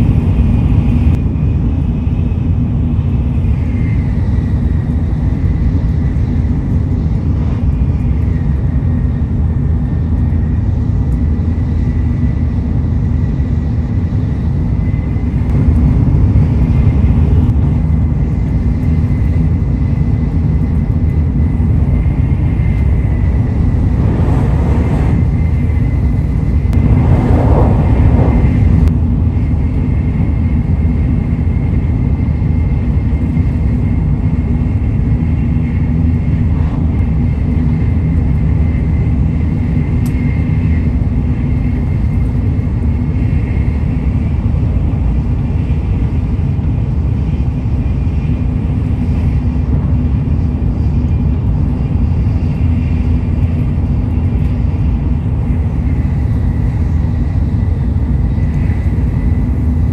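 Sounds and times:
faint steady whine: 0:00.0 - 0:59.9
train cabin low rumble: 0:00.0 - 0:59.9
rushes of noise: 0:21.9 - 0:30.4.

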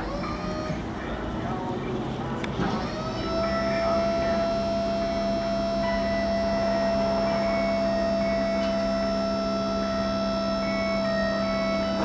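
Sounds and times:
motor hum with whine: 0:00.0 - 0:12.0.

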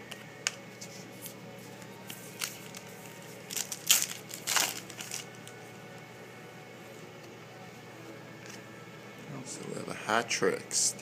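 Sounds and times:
foil card pack crinkling and tearing: 0:02.0 - 0:05.6.

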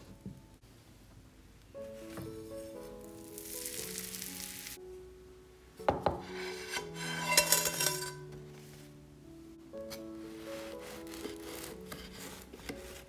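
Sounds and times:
soft background music: 0:01.5 - 0:13.0
bread sizzling in frying pan: 0:03.1 - 0:04.8
pan knocking on wooden board: 0:05.9 - 0:06.3
bread scraping out of pan: 0:06.3 - 0:08.2, 0:10.4 - 0:13.0.

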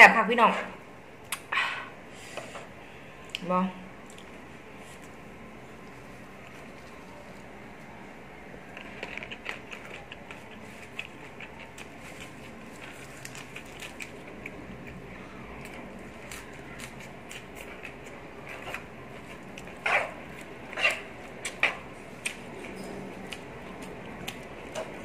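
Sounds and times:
chewing crunching: 0:08.7 - 0:25.0.

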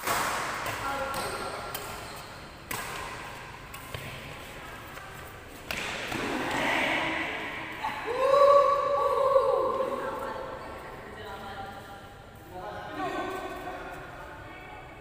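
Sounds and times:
rackets striking shuttlecock: 0:00.0 - 0:04.4.

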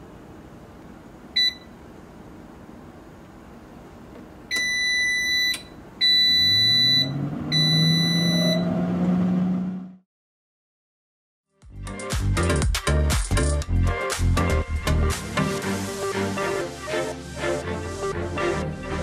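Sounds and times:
air fryer long beeps: 0:01.4 - 0:01.8, 0:04.5 - 0:08.8.

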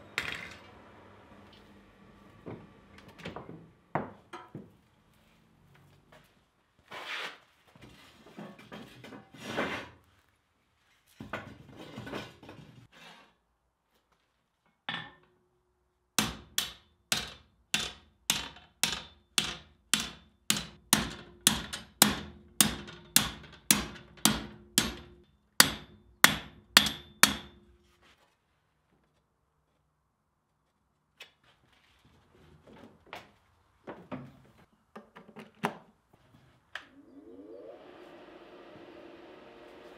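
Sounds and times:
scraping and clattering of tools: 0:07.0 - 0:10.0, 0:10.9 - 0:13.4
hammer striking steel bar: 0:16.2 - 0:27.7.

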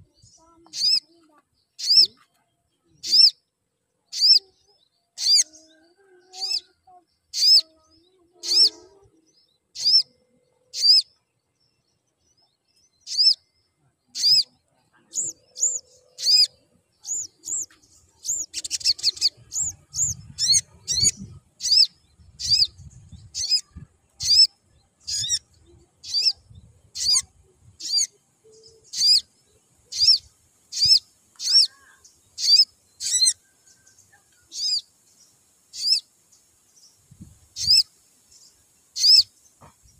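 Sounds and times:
bird chirping: 0:00.0 - 0:39.9.

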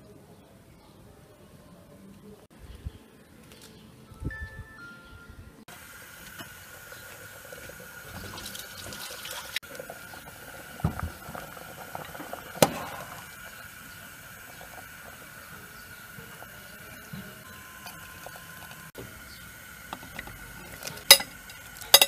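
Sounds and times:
water boiling: 0:05.7 - 0:22.0.

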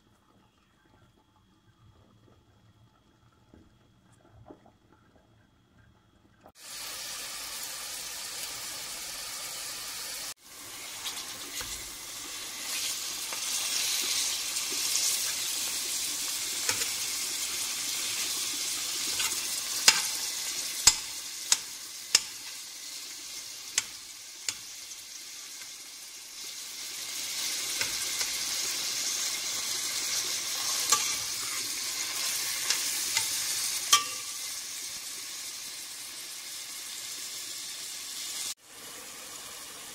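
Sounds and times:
meat and onion sizzling in oil: 0:06.5 - 0:39.9
metal spoon knocking pot: 0:34.0 - 0:34.4.

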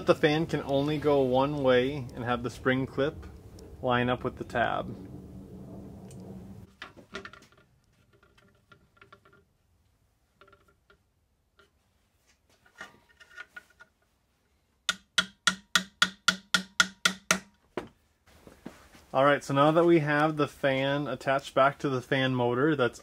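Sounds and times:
sharp metallic taps: 0:14.9 - 0:17.6.

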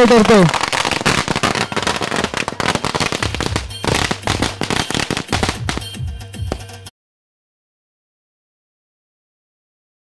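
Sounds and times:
firecrackers cracking: 0:00.0 - 0:06.7.

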